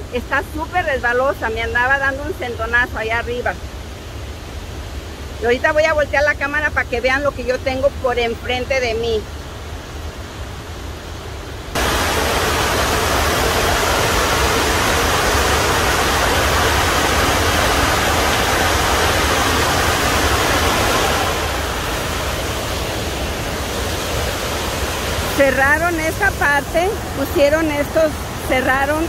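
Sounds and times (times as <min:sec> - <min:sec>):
waterfall rushing: 0:09.6 - 0:29.0.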